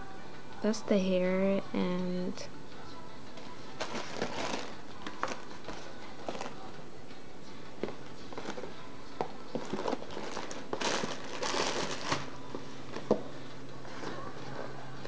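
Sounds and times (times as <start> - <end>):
plastic packaging crinkling: 3.8 - 6.6, 9.5 - 13.1.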